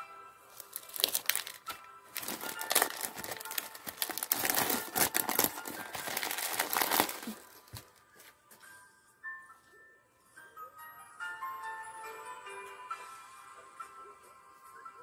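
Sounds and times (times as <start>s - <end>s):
faint music: 0.0s - 15.0s
cellophane wrap crinkling: 0.6s - 8.0s.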